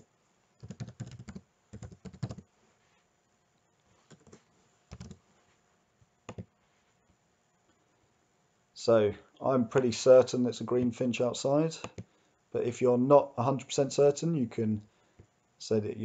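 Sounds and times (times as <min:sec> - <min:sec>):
computer keyboard typing: 0:00.6 - 0:02.4, 0:04.1 - 0:05.2, 0:06.3 - 0:06.5, 0:11.8 - 0:12.1.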